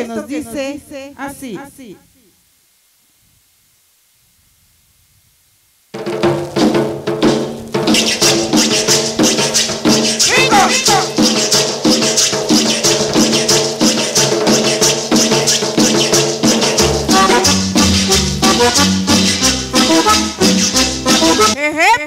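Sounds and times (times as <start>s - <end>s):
percussion rhythm: 6.0s - 21.6s
keyboard melody: 17.1s - 21.6s.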